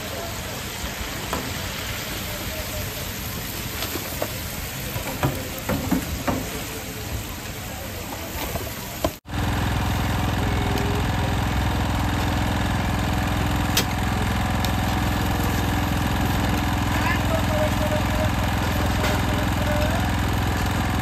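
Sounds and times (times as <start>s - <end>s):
chicken deep-frying in oil: 0.0s - 21.0s
small engine humming: 9.3s - 21.0s.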